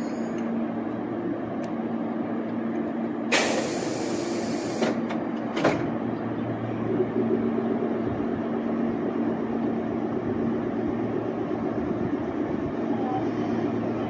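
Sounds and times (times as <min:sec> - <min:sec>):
electric train humming: 0:00.0 - 0:14.0
compressed air hiss: 0:03.3 - 0:05.0
clunks: 0:04.7 - 0:06.0.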